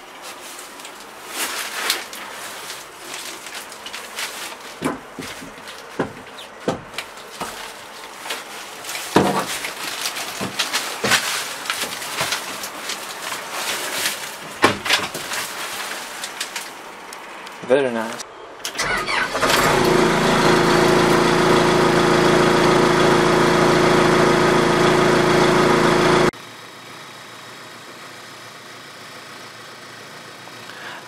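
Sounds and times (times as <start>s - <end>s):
rustling: 0.0s - 17.7s.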